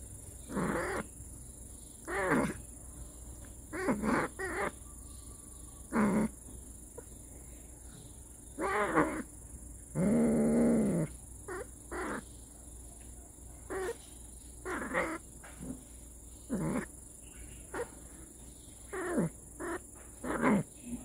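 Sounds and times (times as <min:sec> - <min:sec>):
cat yowling: 0:02.1 - 0:02.6, 0:03.7 - 0:04.8, 0:13.7 - 0:14.0.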